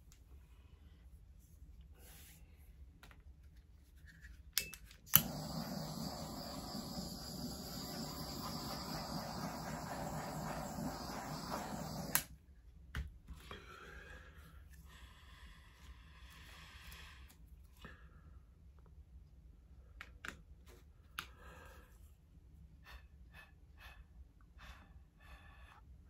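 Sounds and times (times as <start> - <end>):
torch igniter clicks: 4.6 - 12.3
hissing torch flame: 5.1 - 12.3.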